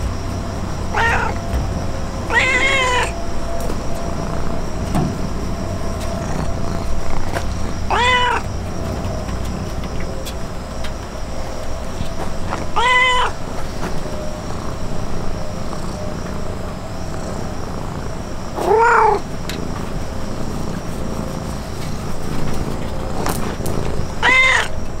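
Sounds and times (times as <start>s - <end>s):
cat meowing: 0.8s - 1.6s, 2.2s - 4.6s, 6.0s - 8.5s, 12.4s - 13.5s, 18.6s - 19.3s, 24.2s - 24.9s.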